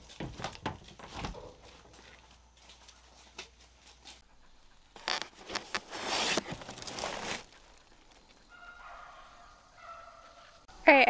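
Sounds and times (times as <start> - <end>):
cardboard box scraping and tearing: 5.0 - 7.6.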